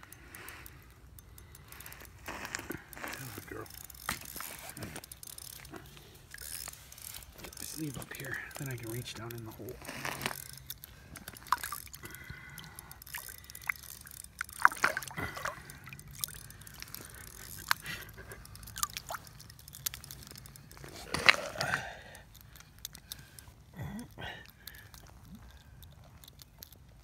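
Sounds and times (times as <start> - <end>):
water splashing from thrashing fish: 11.2 - 19.9.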